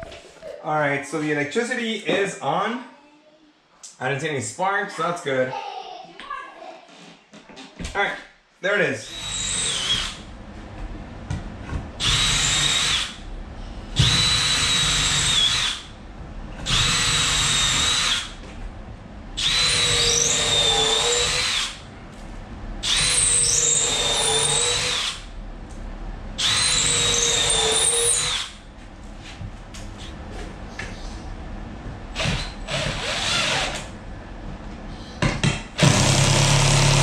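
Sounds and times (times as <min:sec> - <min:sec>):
cordless drill driving screws: 0:09.1 - 0:10.2, 0:12.0 - 0:13.2, 0:14.0 - 0:15.8, 0:16.7 - 0:18.3, 0:19.4 - 0:21.8, 0:22.8 - 0:25.2, 0:26.4 - 0:28.5, 0:32.2 - 0:33.9, 0:35.8 - 0:37.0.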